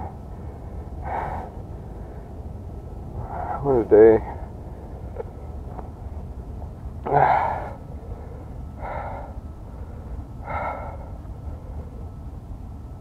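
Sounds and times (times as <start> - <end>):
man gasping breaths: 0.1 - 2.4, 7.0 - 11.8.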